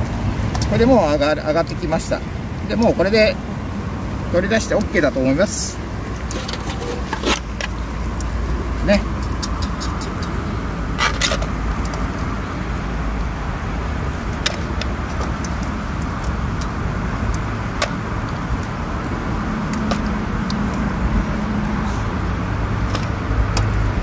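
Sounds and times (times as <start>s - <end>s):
fish deep-frying in hot oil: 11.6s - 21.8s.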